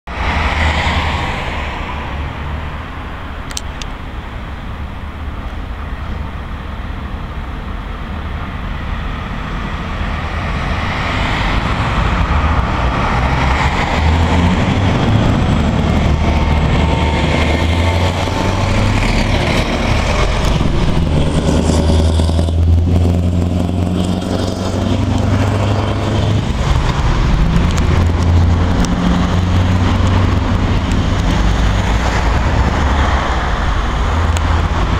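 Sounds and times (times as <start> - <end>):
diesel truck driving past: 7.8 - 34.9.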